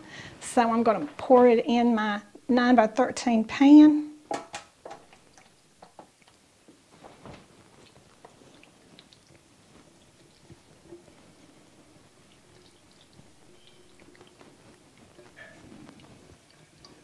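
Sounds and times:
soft wet squelches: 4.8s - 17.0s.

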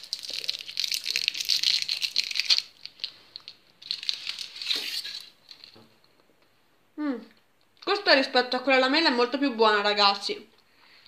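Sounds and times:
plastic candy wrapper crinkling: 0.0s - 5.8s.

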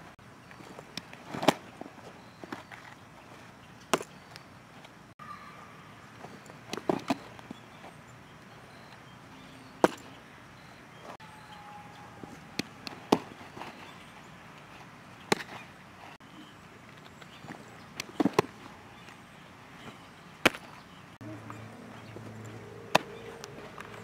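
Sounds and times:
balls smacking into a mitt: 6.7s - 7.5s, 9.8s - 10.1s, 15.3s - 15.6s, 17.4s - 18.6s, 20.4s - 20.7s.

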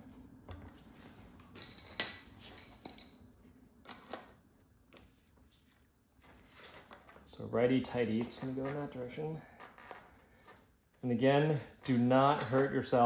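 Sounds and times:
metal tool clinking: 1.6s - 3.2s.

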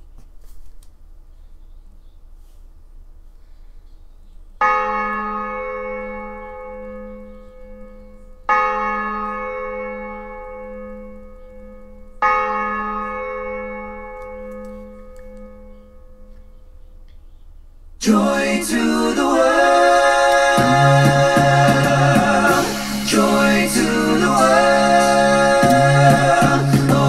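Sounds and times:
large church bell tolling: 4.6s - 16.8s.

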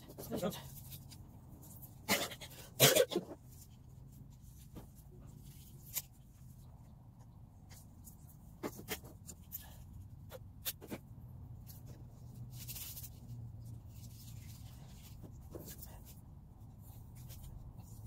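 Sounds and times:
paper rustling: 7.6s - 18.0s.

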